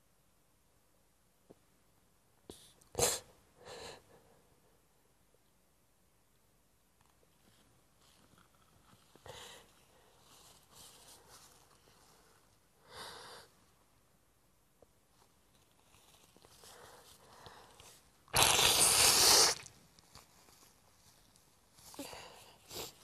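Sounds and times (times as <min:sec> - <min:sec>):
soft sniff: 0:02.5 - 0:04.6, 0:07.5 - 0:13.7, 0:21.7 - 0:23.0
woman blowing her nose: 0:02.9 - 0:04.0, 0:18.3 - 0:19.7.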